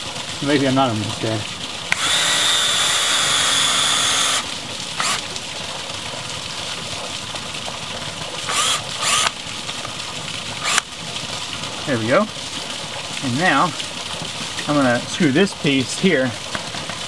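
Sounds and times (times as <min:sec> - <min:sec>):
cordless drill driving screws: 0:01.9 - 0:05.2, 0:08.4 - 0:09.4, 0:10.6 - 0:10.9.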